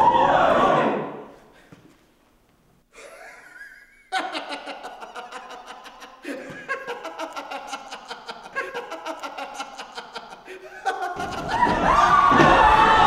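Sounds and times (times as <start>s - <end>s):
man laughing heartily: 3.0s - 11.9s.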